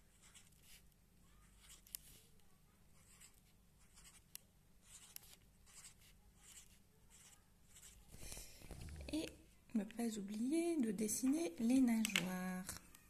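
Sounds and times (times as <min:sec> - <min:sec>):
marker scratching on cardboard: 0:00.0 - 0:02.2, 0:02.9 - 0:08.2.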